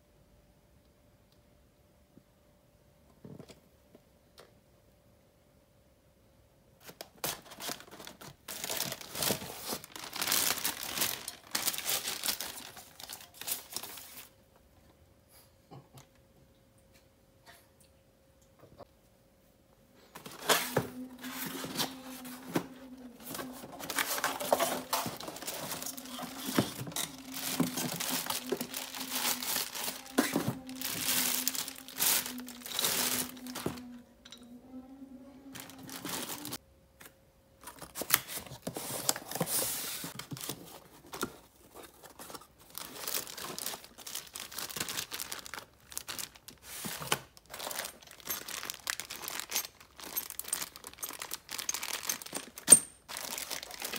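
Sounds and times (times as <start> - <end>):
cardboard and foam rustling: 6.8 - 14.4, 20.1 - 33.9, 35.5 - 36.6, 37.6 - 53.9
plastic packaging crinkling: 6.8 - 14.4, 20.1 - 34.0, 35.5 - 36.6, 37.6 - 53.9.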